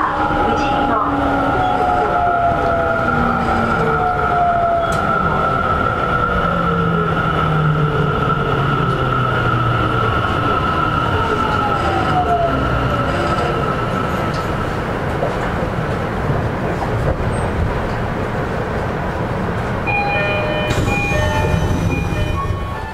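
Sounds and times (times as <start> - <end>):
rail and wheel rumble: 0.0 - 22.9
train inverter whine: 19.6 - 22.9
chime-like tones: 19.9 - 22.9.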